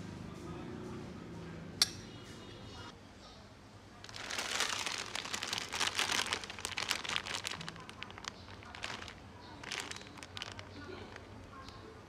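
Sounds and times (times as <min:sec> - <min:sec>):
plastic packets crinkling: 0:04.0 - 0:11.8.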